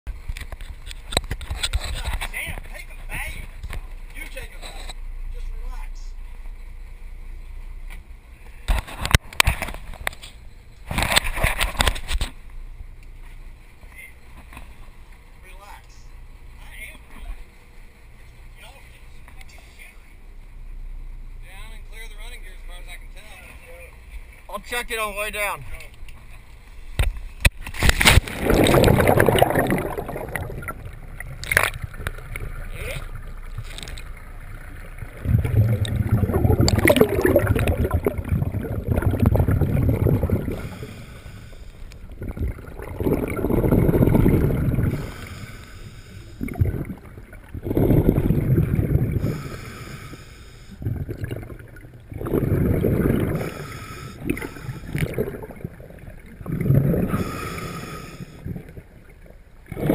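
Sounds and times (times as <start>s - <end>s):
diver's bubbles rumbling underwater: 28.0s - 41.2s, 42.0s - 45.4s, 46.4s - 49.9s, 50.8s - 59.9s.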